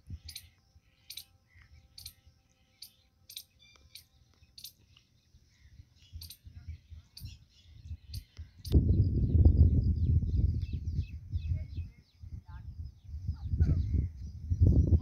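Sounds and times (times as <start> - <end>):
squirrel chirping: 0.1 - 5.0, 6.0 - 6.5, 7.1 - 8.8.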